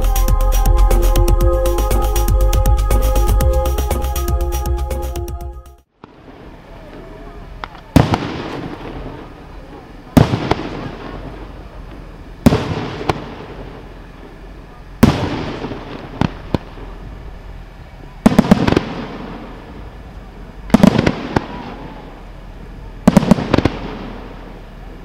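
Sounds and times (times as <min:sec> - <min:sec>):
small firework cracks: 0:07.6 - 0:09.4, 0:10.1 - 0:13.9, 0:15.0 - 0:16.9, 0:18.2 - 0:19.7, 0:20.7 - 0:22.2, 0:23.0 - 0:24.7.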